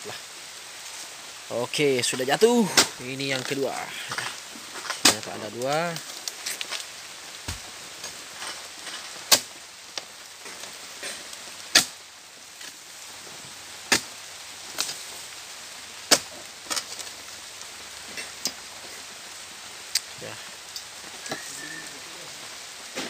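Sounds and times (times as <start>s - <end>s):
steady hiss of rain: 0.0s - 23.0s.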